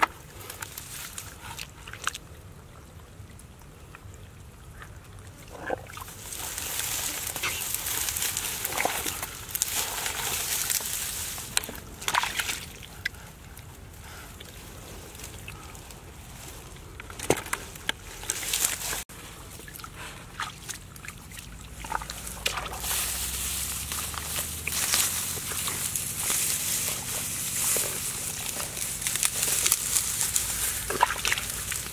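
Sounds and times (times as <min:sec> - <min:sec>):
hands splashing in muddy water: 0:05.8 - 0:13.1, 0:19.6 - 0:31.9.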